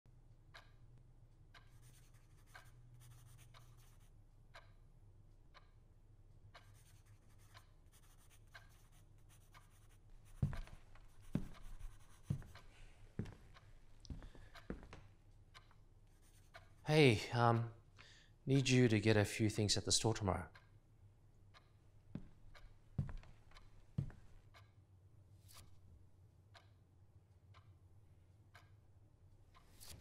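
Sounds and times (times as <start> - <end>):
low room hum: 0.1 - 30.0
pen scratching on paper: 6.6 - 12.6.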